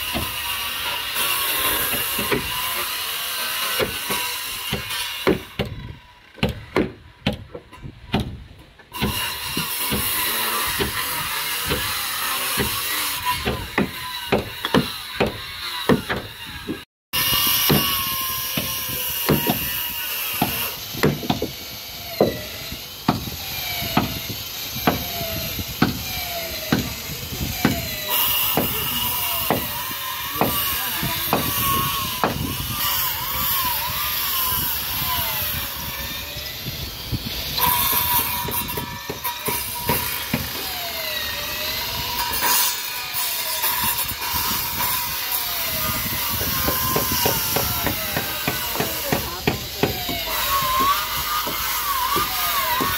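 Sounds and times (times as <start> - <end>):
circular saw cutting: 0.0 - 6.8, 8.9 - 52.9
hammer blows on wood: 12.6 - 19.8, 23.1 - 32.8, 45.9 - 52.9.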